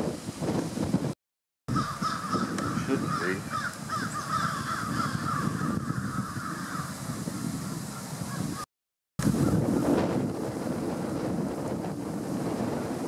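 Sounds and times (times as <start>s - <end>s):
wind noise on microphone: 0.0s - 13.0s
flock of birds calling: 1.7s - 8.7s.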